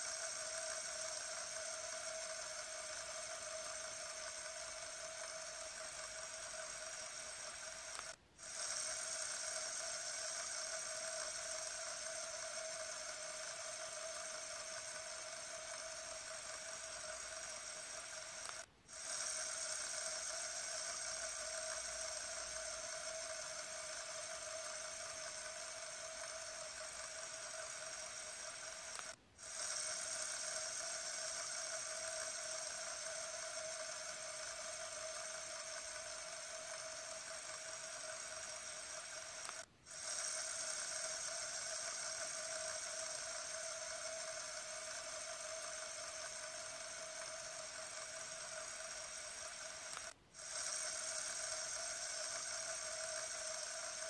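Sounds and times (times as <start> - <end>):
fidget spinner whirring: 0.0 - 54.0.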